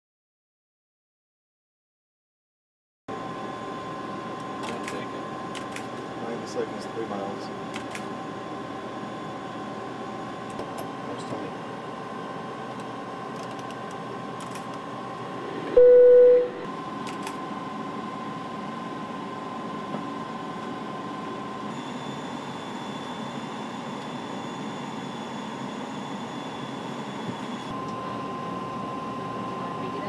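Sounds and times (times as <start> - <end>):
faint high whine: 14.1 - 30.0
loud beep: 15.6 - 16.7.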